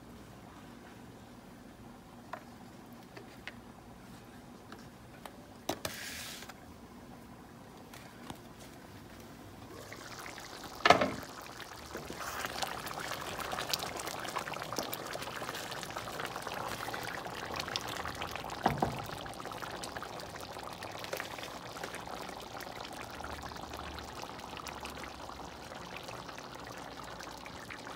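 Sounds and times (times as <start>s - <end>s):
stew bubbling in a pan: 9.6s - 27.9s.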